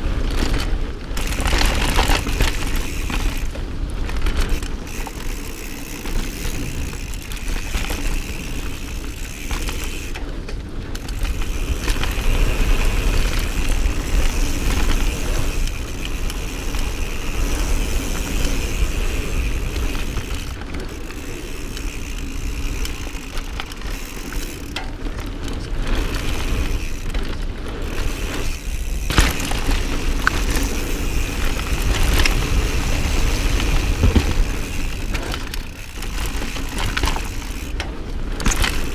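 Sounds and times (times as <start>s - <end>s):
bike rattling: 0.0s - 38.9s
tyre noise: 0.0s - 38.9s
wind rush on microphone: 0.0s - 38.9s.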